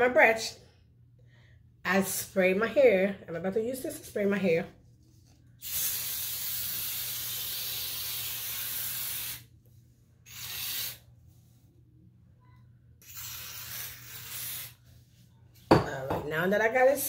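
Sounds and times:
aerosol can spraying: 0:05.6 - 0:09.5, 0:10.3 - 0:11.1, 0:13.0 - 0:14.8.

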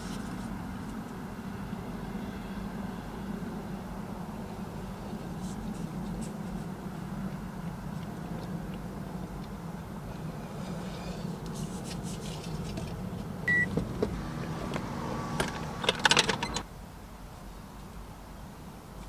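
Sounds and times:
low hum inside a van: 0:00.0 - 0:19.0
short electronic beep: 0:13.5 - 0:13.7.

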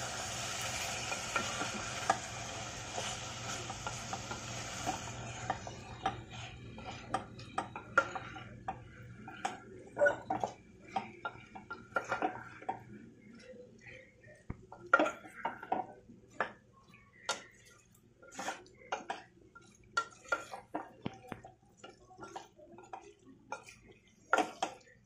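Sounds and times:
steady hiss: 0:00.0 - 0:05.6
spatula scraping steel pot: 0:17.1 - 0:21.0.

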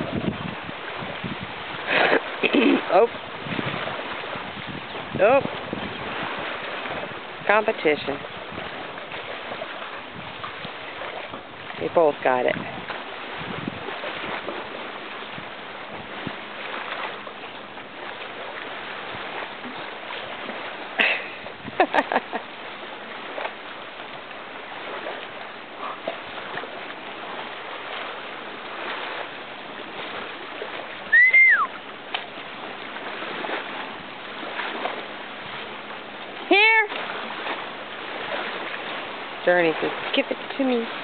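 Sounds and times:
choppy water and wind hiss: 0:00.0 - 0:41.0
dogs splashing in water: 0:00.0 - 0:41.0
whistle-like chirp: 0:31.1 - 0:31.8.

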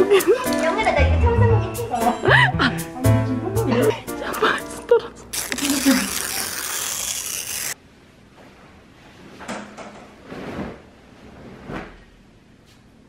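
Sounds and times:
bedding rustling: 0:10.2 - 0:12.2.

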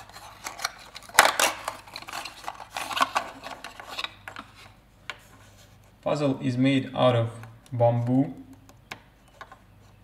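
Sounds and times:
cardboard rustling and scraping: 0:00.0 - 0:06.0.

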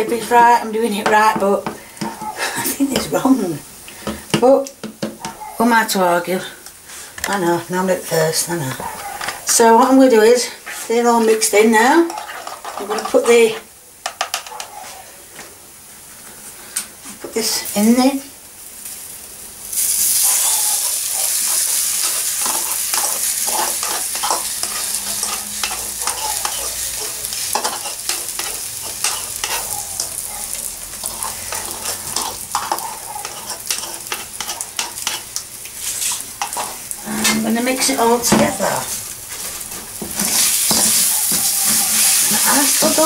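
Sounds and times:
egg sizzling in hot oil: 0:09.2 - 0:14.6, 0:17.4 - 0:43.0
wooden spoon scraping pan: 0:10.4 - 0:15.0, 0:20.2 - 0:43.0.

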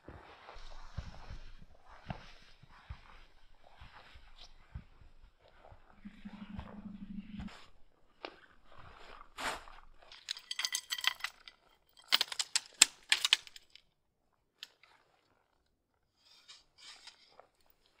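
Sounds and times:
metal gear clattering: 0:10.1 - 0:13.7
faint ticks and scrapes: 0:16.1 - 0:18.0.

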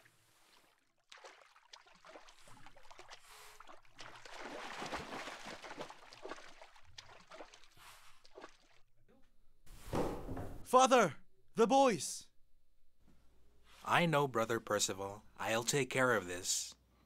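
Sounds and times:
water splashing from swimmers: 0:00.0 - 0:08.9.

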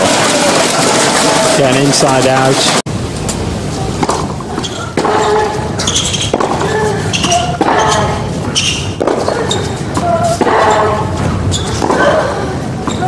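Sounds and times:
racket striking tennis ball: 0:04.0 - 0:12.2.

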